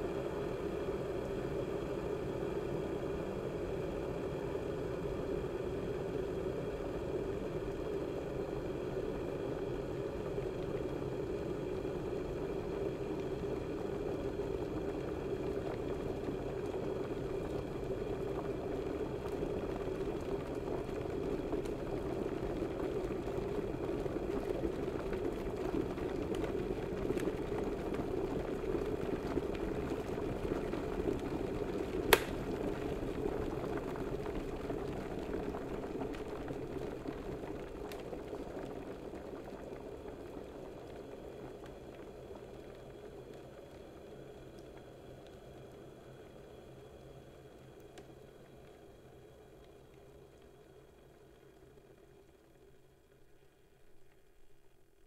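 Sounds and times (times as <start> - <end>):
water boiling in heater: 0.0 - 55.0
heater switch click: 32.1 - 32.4.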